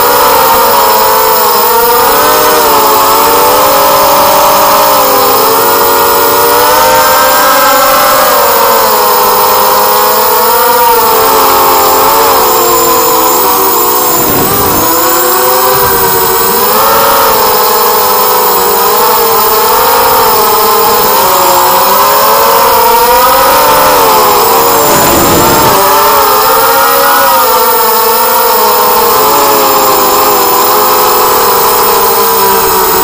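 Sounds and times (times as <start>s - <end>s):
drone motors whining: 0.0s - 33.0s
wind noise: 14.1s - 16.6s, 24.6s - 26.0s.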